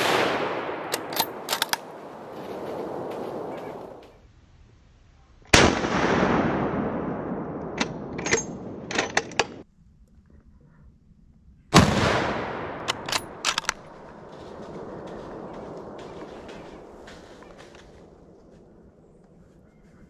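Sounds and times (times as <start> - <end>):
rifle shots with echo: 0.0 - 4.0, 5.5 - 8.9, 11.7 - 18.2.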